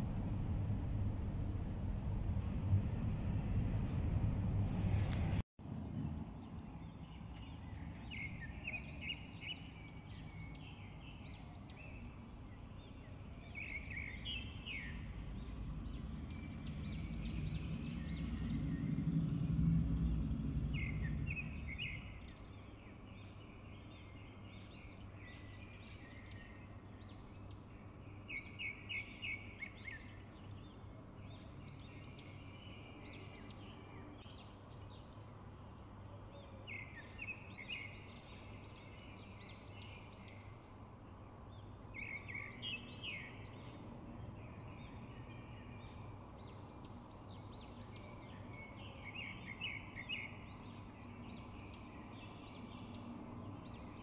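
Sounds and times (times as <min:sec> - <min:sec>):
low rumble: 0:00.0 - 0:07.2, 0:14.9 - 0:22.5
small birds chirping: 0:00.0 - 0:19.3, 0:19.9 - 0:54.0.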